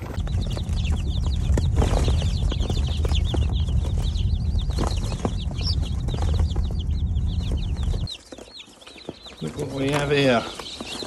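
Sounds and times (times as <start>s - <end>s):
loud low rumble: 0.0s - 8.1s
chicks peeping: 0.0s - 11.0s.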